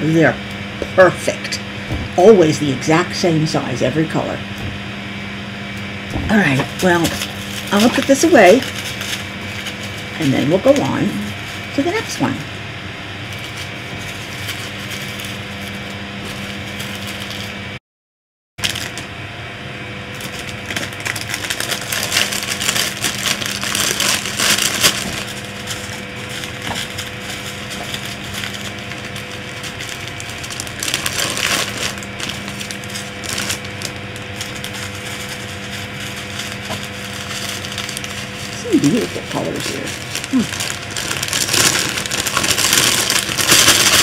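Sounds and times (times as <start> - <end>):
steady low hum: 0.0 - 17.8, 18.6 - 44.0
plastic bags crinkling: 6.3 - 12.1, 13.3 - 17.5, 18.6 - 19.0, 20.1 - 44.0.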